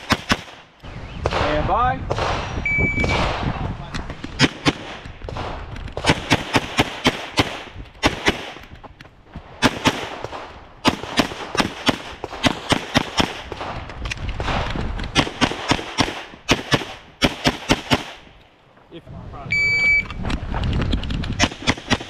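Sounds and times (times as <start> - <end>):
pistol shots: 0.0 - 3.5, 4.4 - 8.7, 9.6 - 13.8, 14.4 - 18.3, 21.4 - 22.0.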